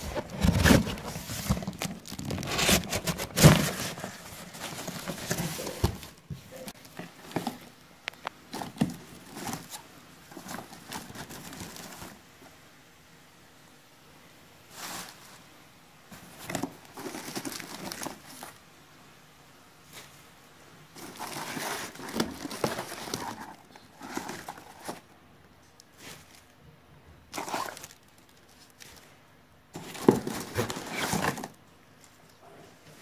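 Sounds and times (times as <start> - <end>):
cardboard filler rustling: 0.0 - 12.3, 14.7 - 15.5, 16.1 - 18.6, 20.9 - 25.2, 25.9 - 26.5, 27.3 - 32.2.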